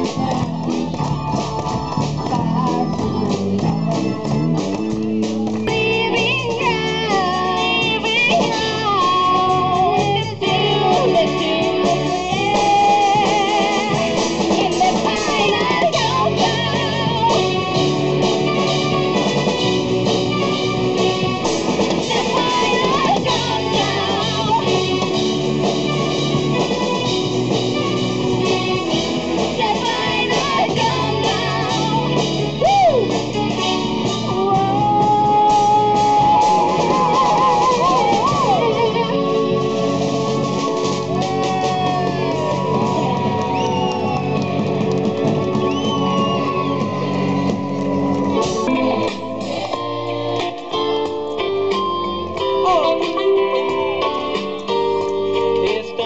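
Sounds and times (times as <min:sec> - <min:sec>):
person singing: 0:00.0 - 0:01.4, 0:05.6 - 0:19.4, 0:21.8 - 0:25.6, 0:27.8 - 0:43.6, 0:51.8 - 0:56.0
live band music: 0:00.0 - 0:56.0.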